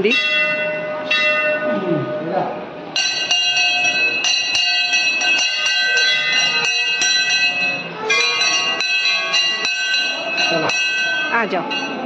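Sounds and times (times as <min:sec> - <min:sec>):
brass bell clanging: 0:00.0 - 0:12.0
second bell ringing: 0:03.0 - 0:12.0.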